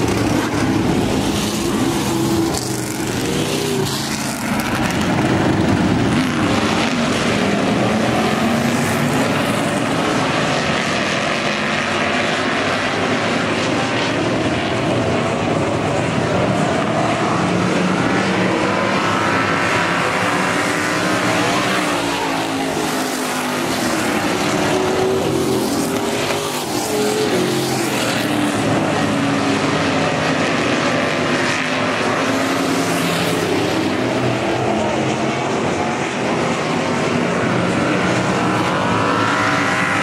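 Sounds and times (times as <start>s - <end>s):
race car engines revving: 0.0s - 40.0s.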